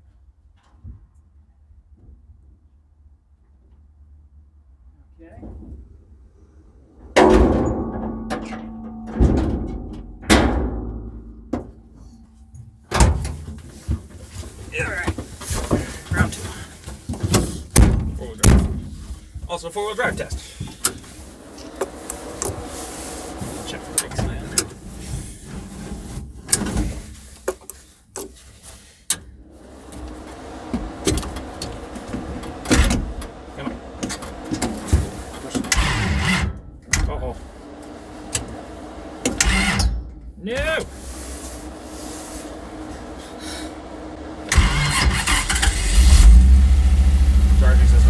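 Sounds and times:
heavy thuds on steel truck body: 7.2s - 11.9s, 17.3s - 19.0s
truck cab engine rumble: 7.8s - 48.0s.

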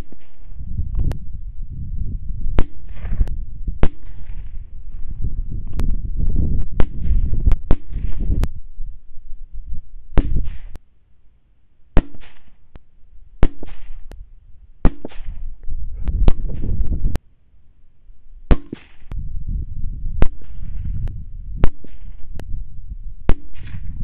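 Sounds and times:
low rumble: 0.0s - 10.8s, 12.6s - 24.0s
rifle shots: 2.6s - 4.6s, 6.8s - 8.3s, 12.0s - 12.6s, 13.4s - 14.1s, 14.8s - 15.4s, 21.6s - 22.3s, 23.3s - 24.0s.

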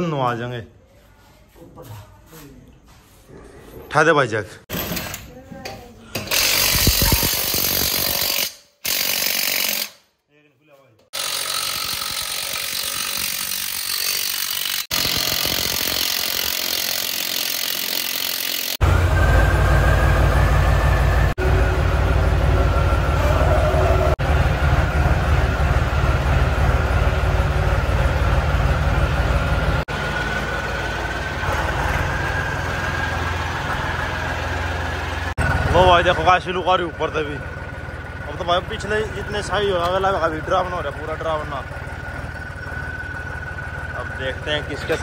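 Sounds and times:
tractor diesel engine running: 18.8s - 45.0s.

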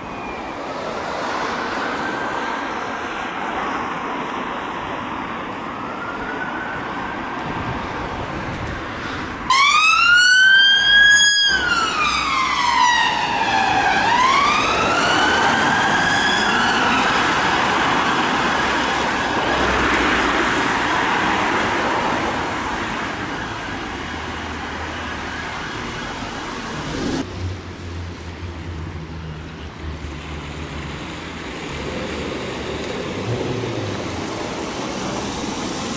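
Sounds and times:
emergency siren wailing: 0.0s - 3.0s, 5.5s - 7.5s, 9.5s - 27.2s
road noise: 0.0s - 35.9s.

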